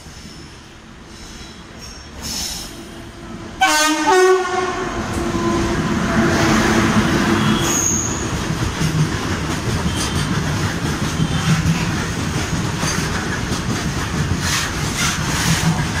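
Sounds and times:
train wagons rumbling over rails: 0.0s - 16.0s
train horn blasting: 3.6s - 8.2s.

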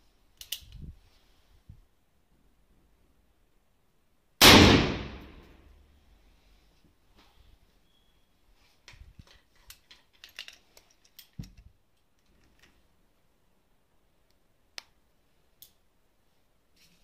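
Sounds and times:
revolver handling clicks: 0.4s - 0.8s.

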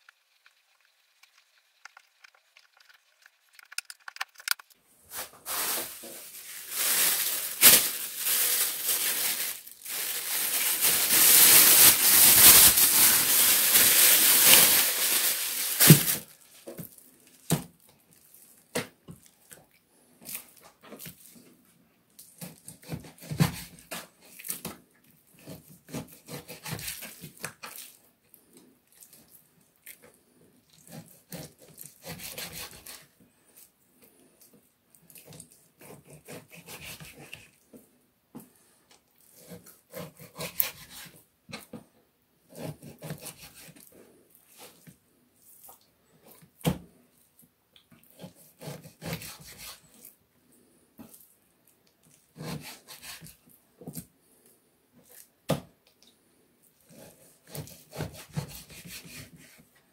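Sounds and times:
knife scraping meat: 25.3s - 27.4s, 30.8s - 33.1s, 35.1s - 37.5s, 39.2s - 41.2s, 42.5s - 44.8s, 48.0s - 50.1s, 52.1s - 53.4s, 56.8s - 59.7s.

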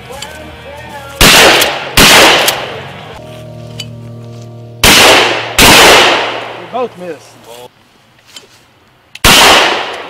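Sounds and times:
shotgun blasts with echo: 1.2s - 2.8s, 4.8s - 6.7s, 9.2s - 10.0s.

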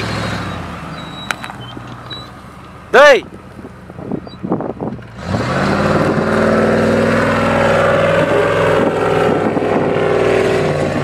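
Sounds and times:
engine running hard at high revs: 4.6s - 11.0s.

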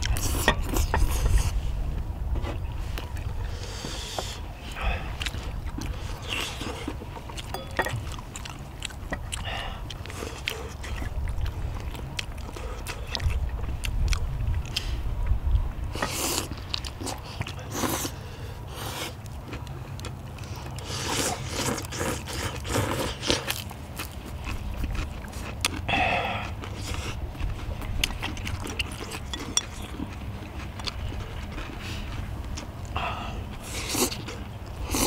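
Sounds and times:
steady low rumble: 0.0s - 20.9s, 23.6s - 35.0s
people chewing food: 0.0s - 35.0s
chopstick clicks and scrapes: 28.0s - 30.1s.

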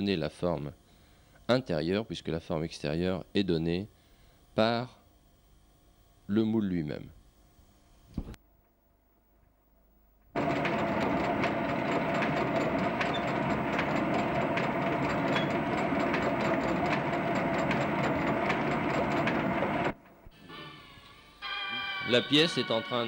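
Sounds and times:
pottery machine clattering: 10.4s - 20.0s
regular mechanical ticks: 10.4s - 20.0s.

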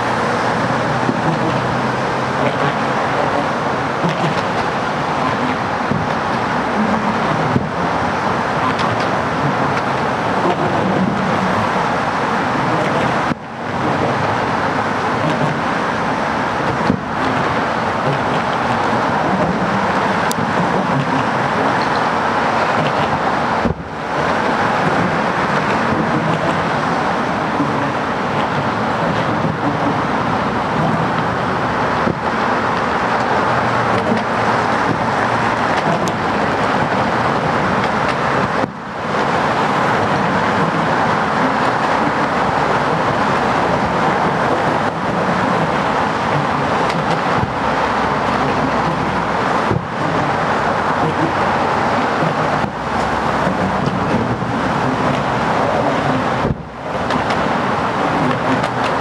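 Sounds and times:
road traffic roar: 0.0s - 59.0s
wind: 0.0s - 59.0s.

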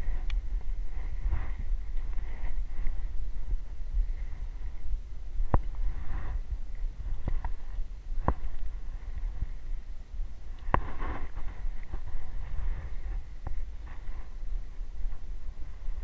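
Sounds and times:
wind rumble on microphone: 0.0s - 16.0s
footsteps on flattened reeds: 10.6s - 16.0s.

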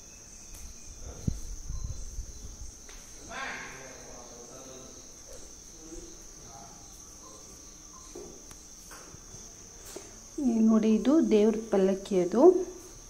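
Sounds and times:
crickets chirring: 0.0s - 13.0s
faint distant voices: 2.4s - 12.8s.

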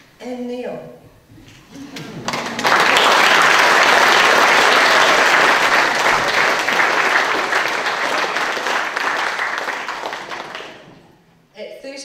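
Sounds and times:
audience applauding: 1.7s - 11.2s.

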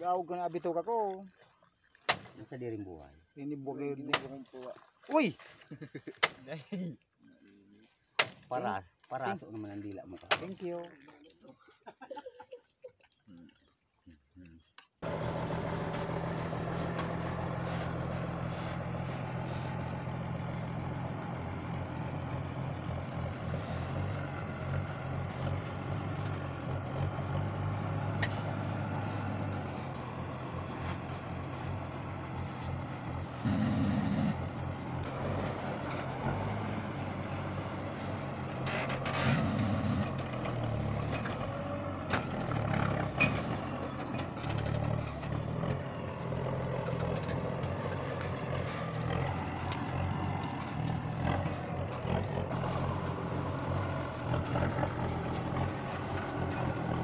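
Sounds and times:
truck engine running: 15.0s - 57.0s.

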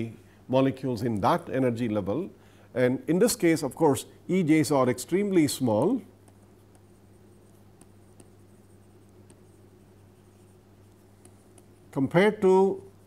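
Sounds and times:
steady low hum: 0.0s - 13.0s
stylus scratching on tablet screen: 5.2s - 13.0s.

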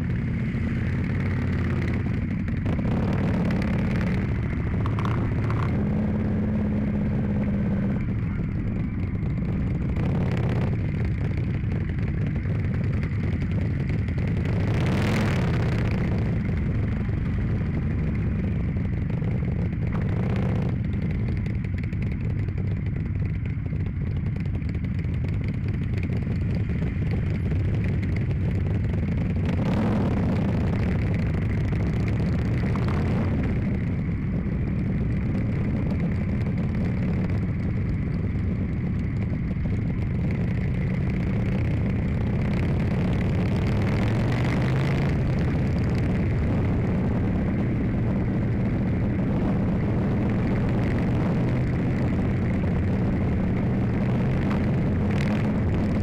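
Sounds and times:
motorcycle engine running: 0.0s - 56.0s
wind noise on microphone: 26.0s - 56.0s.

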